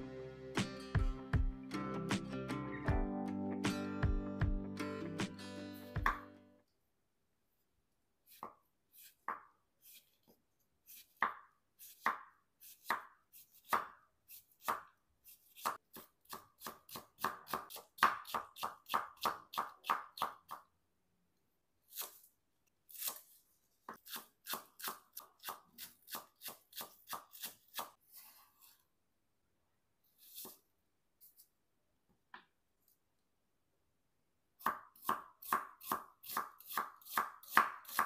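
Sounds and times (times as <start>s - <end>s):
cleaver chopping on wooden board: 15.6s - 20.5s, 34.6s - 38.0s.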